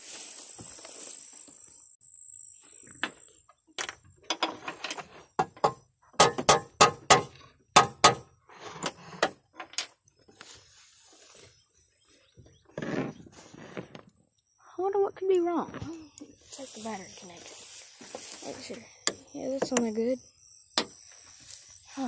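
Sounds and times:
hand tools clacking and knocking: 3.8s - 10.0s.

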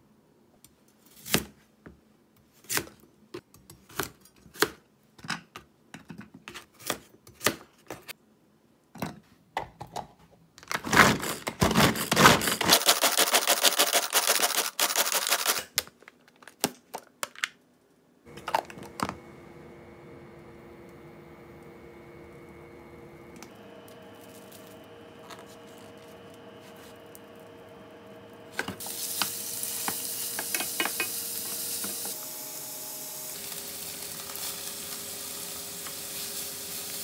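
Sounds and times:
pull-cord food chopper rattling: 10.9s - 15.6s
faint steady hum: 18.2s - 34.4s.

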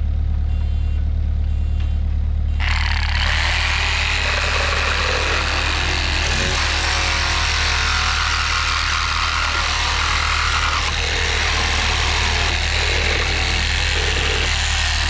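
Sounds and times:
low motor hum: 0.0s - 15.0s
reciprocating saw cutting nails: 2.6s - 15.0s.

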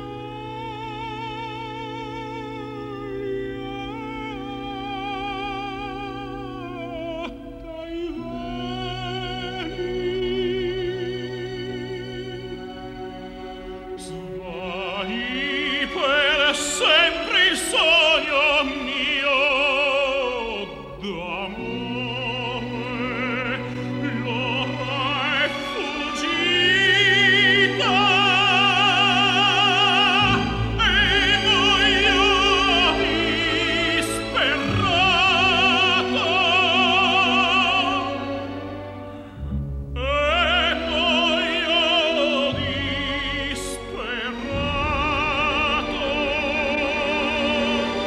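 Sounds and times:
operatic singer with vibrato: 0.0s - 48.0s
orchestra playing: 0.0s - 48.0s.

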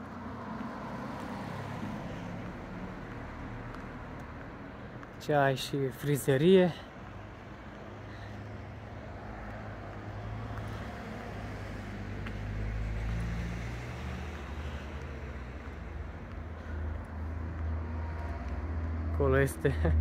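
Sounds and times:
cars passing by: 0.0s - 20.0s.

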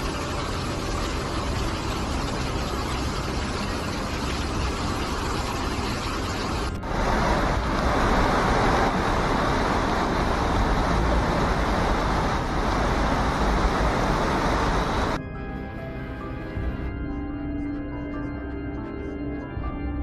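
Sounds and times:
floodwater rushing: 0.0s - 15.2s.

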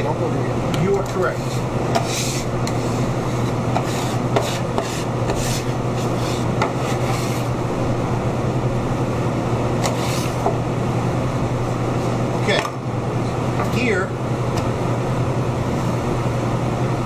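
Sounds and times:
steady low hum: 0.0s - 17.0s
knife scraping on wooden block: 1.4s - 7.5s.

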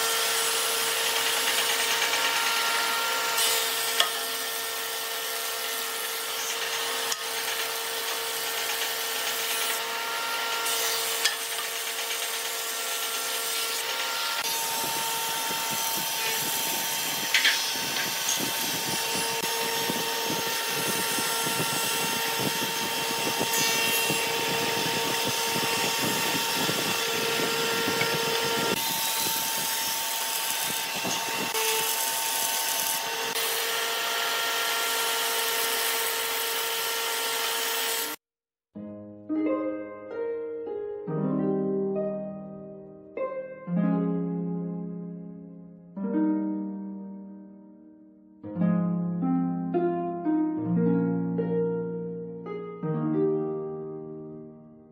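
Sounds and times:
cutterhead planing wood: 0.0s - 38.2s
planer whining: 0.0s - 38.2s.

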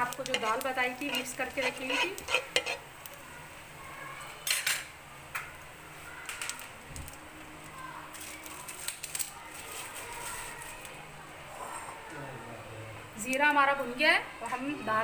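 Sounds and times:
seeds crackling and popping: 0.0s - 3.3s, 5.3s - 11.0s
seeds sizzling in hot oil: 0.0s - 11.0s.

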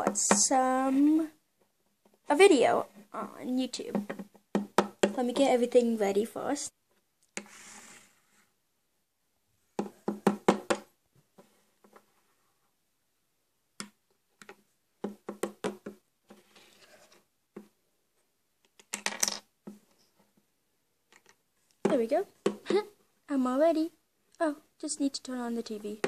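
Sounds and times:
plastic toys clacking on table: 18.6s - 19.5s, 21.1s - 22.6s.

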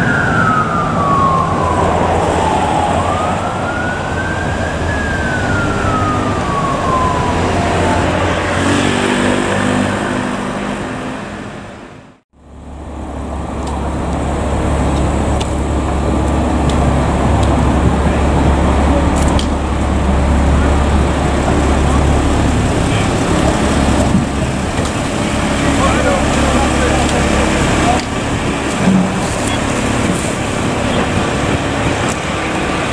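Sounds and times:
siren winding down: 0.0s - 10.6s
road traffic noise: 0.0s - 32.9s
low drone of idling vehicles: 11.1s - 32.9s.

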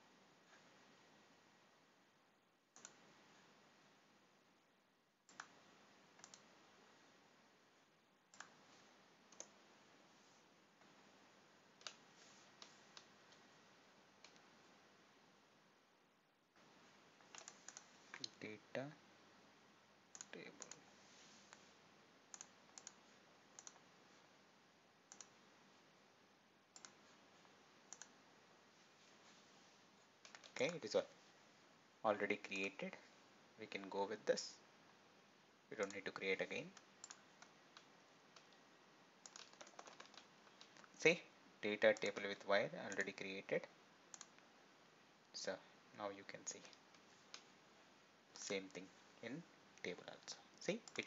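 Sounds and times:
faint hiss: 0.0s - 39.3s, 40.2s - 51.0s
computer mouse clicks: 2.8s - 3.0s, 5.3s - 5.6s, 6.2s - 6.5s, 8.3s - 8.6s, 9.3s - 9.6s, 11.8s - 13.4s, 14.2s - 14.5s, 17.2s - 18.4s, 20.1s - 20.8s, 22.3s - 23.9s, 25.1s - 25.4s, 26.7s - 27.0s, 27.9s - 28.2s, 30.2s - 30.9s, 36.7s - 38.6s, 39.2s - 41.0s, 44.1s - 44.5s, 50.7s - 51.0s.

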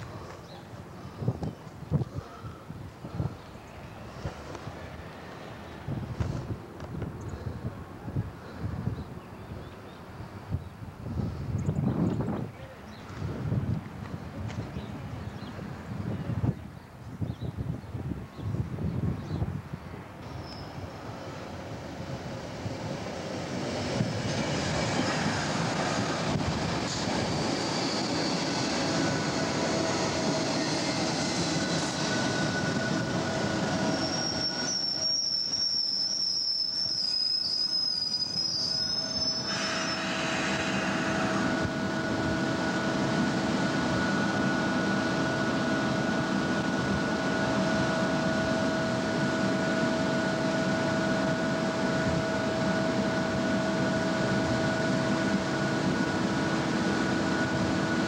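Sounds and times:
train rolling rumble: 0.0s - 16.8s, 17.5s - 58.0s
train steady hum: 0.0s - 58.0s
high brake squeal: 20.3s - 20.8s, 26.9s - 42.2s.

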